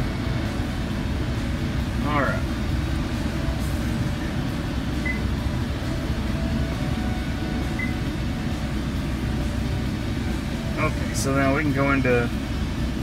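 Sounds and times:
car cabin hum: 0:00.0 - 0:13.0
short high beeps: 0:05.0 - 0:05.3, 0:07.7 - 0:08.0.

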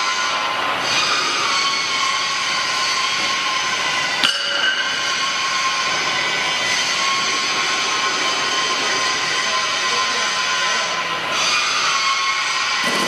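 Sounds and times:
whining machinery: 0:00.0 - 0:13.0
sharp metallic clink: 0:04.2 - 0:05.0.

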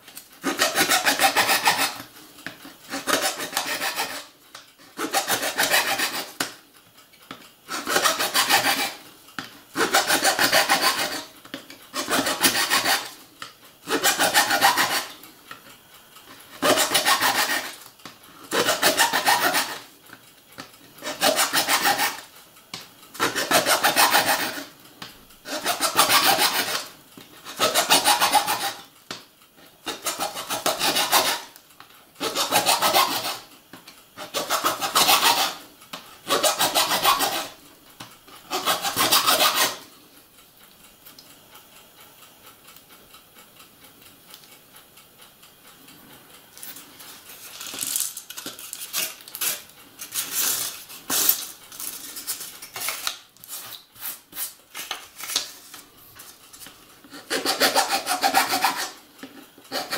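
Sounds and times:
hand file rasping on metal track: 0:00.4 - 0:02.1, 0:02.9 - 0:06.5, 0:07.7 - 0:09.0, 0:09.8 - 0:11.3, 0:11.9 - 0:13.2, 0:13.9 - 0:15.2, 0:16.5 - 0:17.8, 0:18.5 - 0:19.9, 0:21.0 - 0:22.3, 0:23.2 - 0:24.7, 0:25.4 - 0:26.9, 0:27.5 - 0:28.9, 0:29.8 - 0:31.6, 0:32.2 - 0:33.5, 0:34.2 - 0:35.6, 0:36.2 - 0:37.6, 0:38.4 - 0:39.9, 0:57.1 - 0:59.9.

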